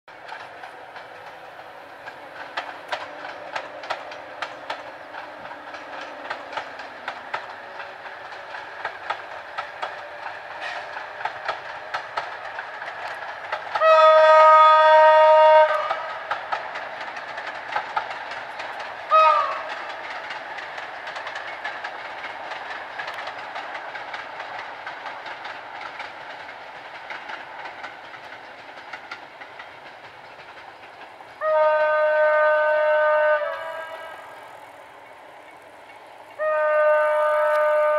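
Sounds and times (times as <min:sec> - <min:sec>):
train wheels clacking on rail joints: 0:00.1 - 0:37.9
locomotive horn blast: 0:10.6 - 0:10.9, 0:13.8 - 0:16.2, 0:19.1 - 0:19.7, 0:31.4 - 0:34.4, 0:36.4 - 0:37.9.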